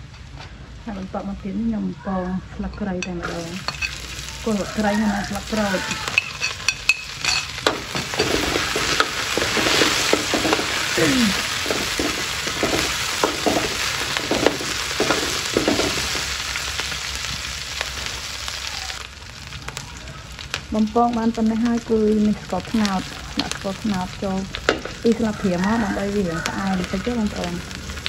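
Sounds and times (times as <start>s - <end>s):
herbs sizzling in hot oil: 0.8s - 28.0s
metal spatula scraping a wok: 3.0s - 16.5s.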